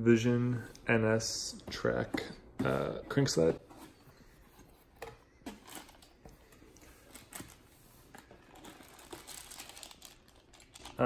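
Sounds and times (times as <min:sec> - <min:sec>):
plastic bag crinkling: 0:08.2 - 0:11.0.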